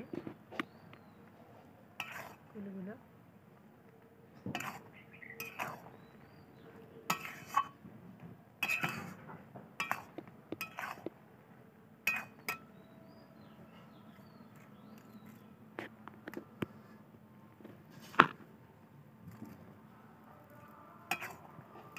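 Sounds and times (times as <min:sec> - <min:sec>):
steel spatula scraping and clinking: 0:02.0 - 0:02.4, 0:04.6 - 0:05.9, 0:07.1 - 0:07.8, 0:08.6 - 0:09.2, 0:09.8 - 0:11.1, 0:12.1 - 0:12.7, 0:21.1 - 0:21.5.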